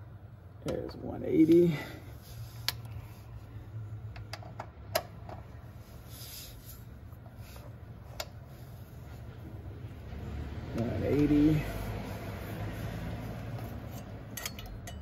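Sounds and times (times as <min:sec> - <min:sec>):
ratchet wrench clicking: 0:13.9 - 0:15.0.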